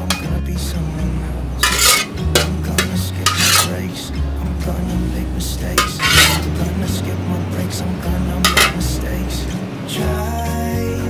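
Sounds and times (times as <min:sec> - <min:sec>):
background music: 0:00.0 - 0:11.0
metal spatula scraping ceramic bowl: 0:01.6 - 0:03.8, 0:05.8 - 0:06.5, 0:08.4 - 0:08.8.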